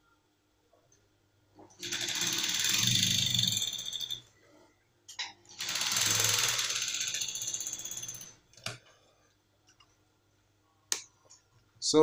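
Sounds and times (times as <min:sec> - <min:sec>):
sewing machine rattling: 0:01.8 - 0:04.2, 0:05.5 - 0:08.4.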